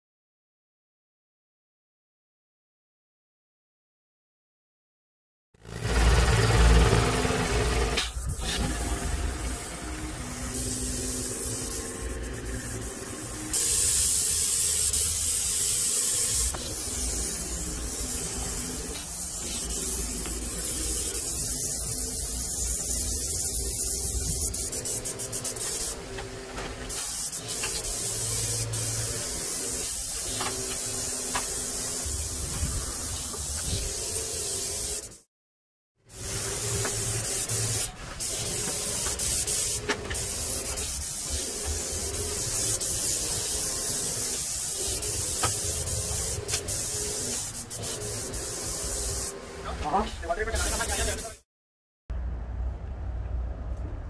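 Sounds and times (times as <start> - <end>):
paint spray gun hissing: 7.2 - 26.1, 26.8 - 35.2, 36.1 - 49.4, 50.5 - 51.4.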